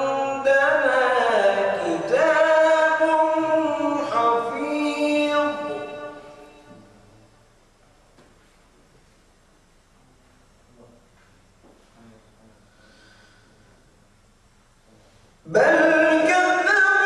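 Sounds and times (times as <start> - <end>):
man reciting melodically: 0.0 - 7.3, 14.8 - 17.0
low room hum: 0.0 - 17.0.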